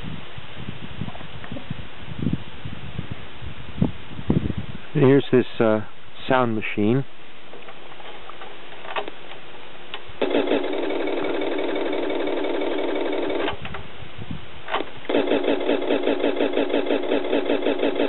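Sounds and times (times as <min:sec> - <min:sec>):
toy electronic engine sound: 0:15.1 - 0:18.0.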